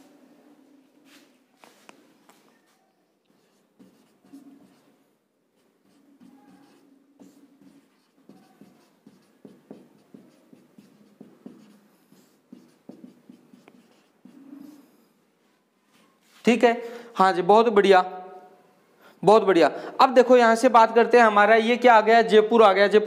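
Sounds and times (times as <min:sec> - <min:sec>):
marker writing on a whiteboard: 0:01.1 - 0:15.2.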